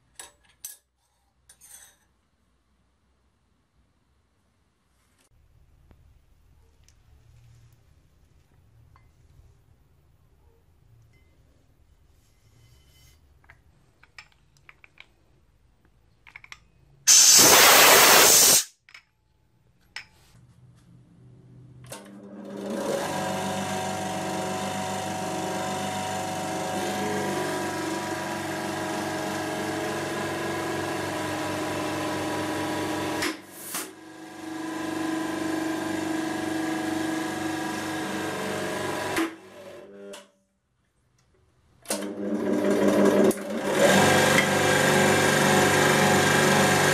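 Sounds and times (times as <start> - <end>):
short loud hiss: 17.1 - 18.8
hydraulic press pump motor humming: 23.1 - 33.4.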